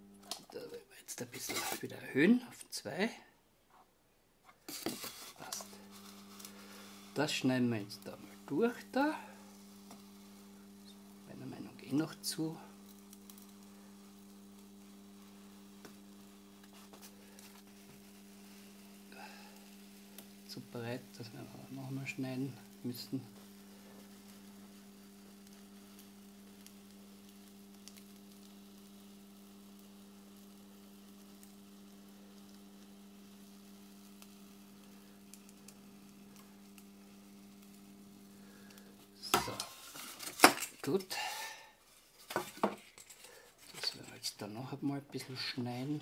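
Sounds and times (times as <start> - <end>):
hot-wire cutter humming: 0.0 - 0.6, 4.7 - 44.2.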